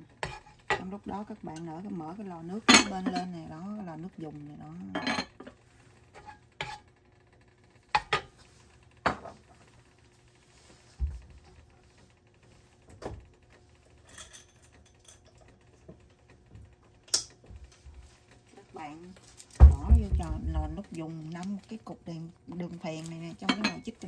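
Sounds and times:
cookware knocking and clinking: 0:02.6 - 0:03.3, 0:04.9 - 0:05.5, 0:23.4 - 0:23.9.

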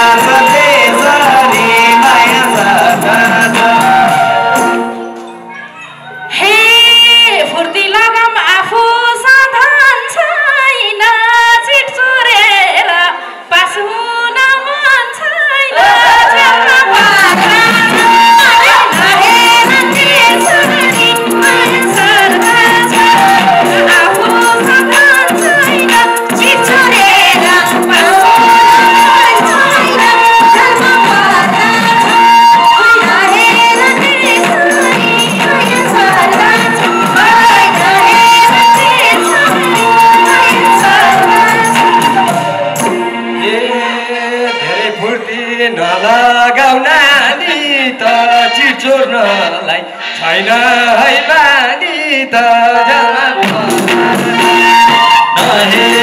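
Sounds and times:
woman singing into a microphone: 0:00.0 - 0:04.9, 0:06.2 - 0:56.0
percussion steady beat: 0:00.0 - 0:05.6, 0:16.4 - 0:43.6, 0:53.4 - 0:56.0
instrumental backing: 0:00.0 - 0:06.8, 0:16.2 - 0:45.0, 0:53.0 - 0:56.0
musical accompaniment: 0:00.0 - 0:06.8, 0:15.8 - 0:46.4, 0:52.4 - 0:56.0.

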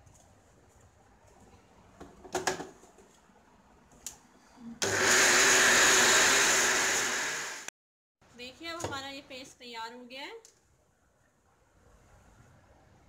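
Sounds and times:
mixer grinder motor running: 0:04.8 - 0:07.7.

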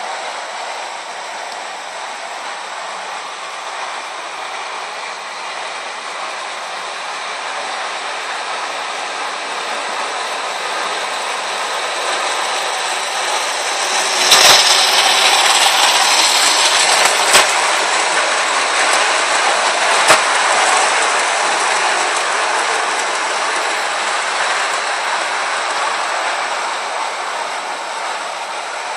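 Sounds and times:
model train rolling on track: 0:00.0 - 0:28.9.

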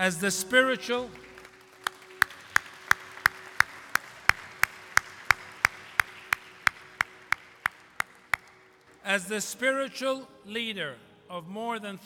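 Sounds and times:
person clapping hands: 0:01.1 - 0:09.0.

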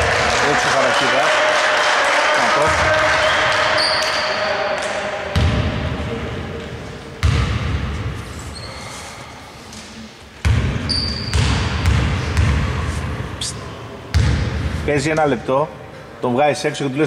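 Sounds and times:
basketball bouncing on court floor: 0:05.3 - 0:05.8, 0:07.2 - 0:07.9, 0:10.4 - 0:12.8, 0:14.1 - 0:14.6.

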